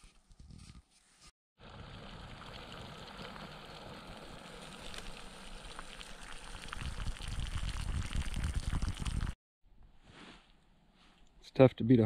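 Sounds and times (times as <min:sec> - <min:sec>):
water bubbling in a pot: 0:01.6 - 0:09.4.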